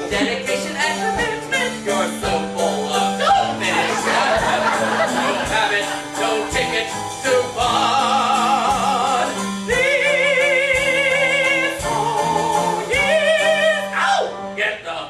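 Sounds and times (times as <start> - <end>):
instrumental accompaniment: 0.0 - 14.7
man singing operatic notes: 5.2 - 14.9.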